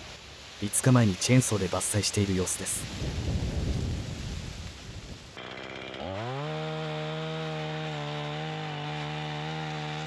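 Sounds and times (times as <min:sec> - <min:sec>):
chainsaw engine revving: 0:05.4 - 0:10.0.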